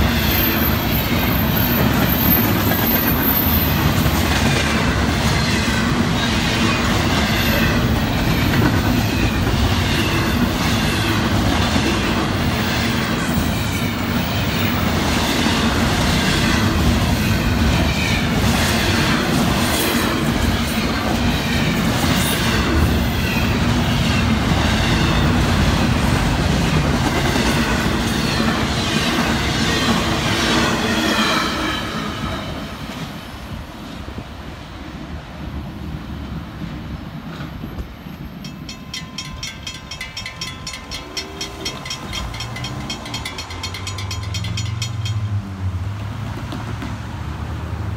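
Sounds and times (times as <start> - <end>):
train wheels squealing: 0.0 - 25.7, 37.4 - 45.4
freight train wheels clattering: 0.0 - 33.2, 37.2 - 45.4.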